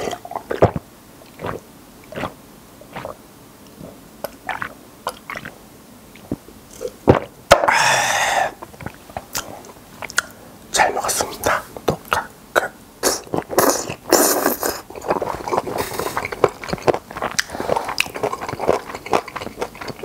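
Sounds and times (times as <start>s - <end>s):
person gulping a drink: 0.0s - 5.6s, 6.2s - 10.3s, 11.9s - 20.0s
loud breathy exhale: 7.7s - 8.6s.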